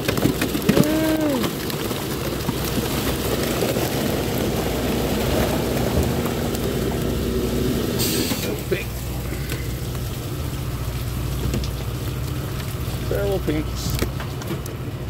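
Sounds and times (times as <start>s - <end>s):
boat engine drone: 0.1s - 15.0s.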